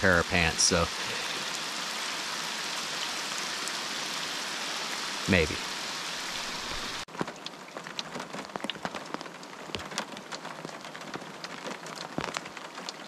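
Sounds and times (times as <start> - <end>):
rain hissing on a lake: 0.0 - 13.0
raindrops ticking: 6.3 - 13.0.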